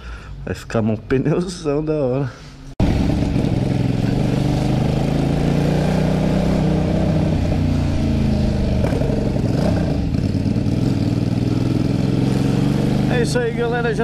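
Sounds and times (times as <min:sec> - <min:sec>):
motorcycle engine running: 0:02.8 - 0:14.0.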